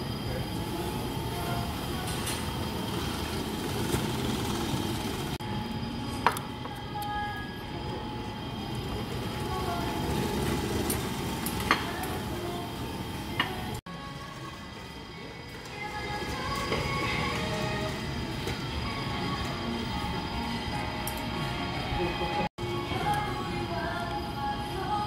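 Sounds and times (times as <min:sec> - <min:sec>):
restaurant din: 0:05.0 - 0:24.1.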